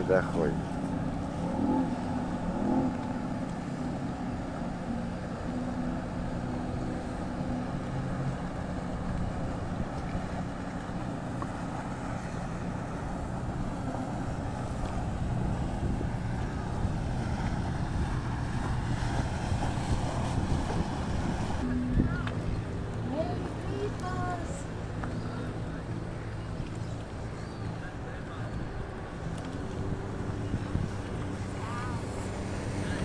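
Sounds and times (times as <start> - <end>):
boat engines droning: 0.0 - 33.0
wind buffeting microphone: 7.7 - 33.0.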